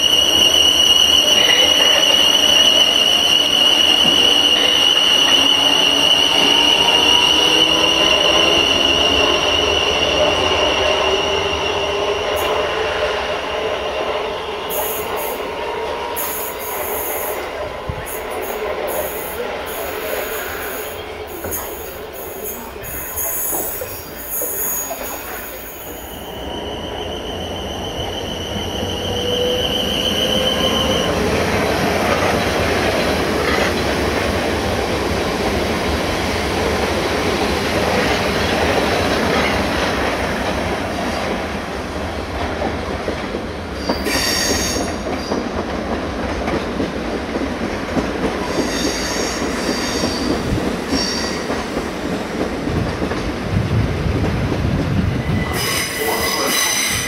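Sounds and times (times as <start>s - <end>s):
high-pitched squeals: 0.0s - 15.6s, 19.7s - 31.9s
rising train whine: 0.0s - 57.0s
train wheels on track: 0.0s - 57.0s.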